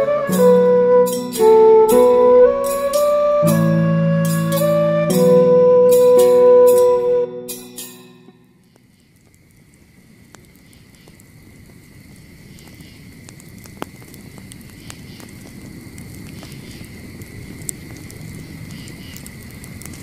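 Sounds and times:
faint high tone: 0.0s - 8.5s
campfire crackling: 0.0s - 20.0s.

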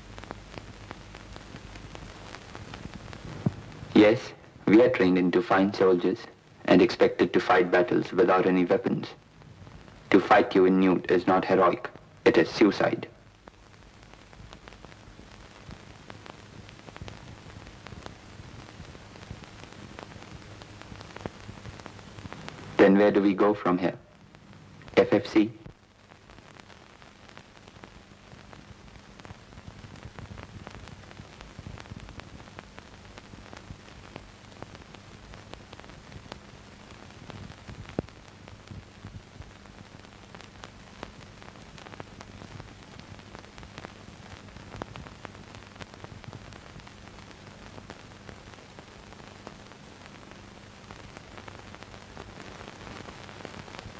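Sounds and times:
crackling hiss with clicks: 0.0s - 53.9s
steady low hum: 0.0s - 53.9s.

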